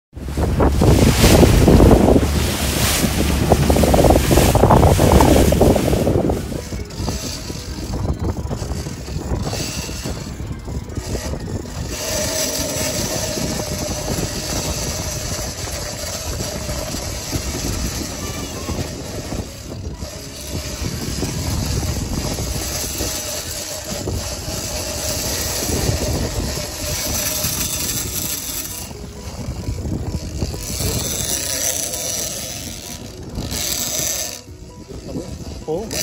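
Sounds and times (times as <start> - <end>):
outboard motor running: 0.1 - 36.0
water rushing along hull: 0.1 - 36.0
wind on microphone: 0.1 - 36.0.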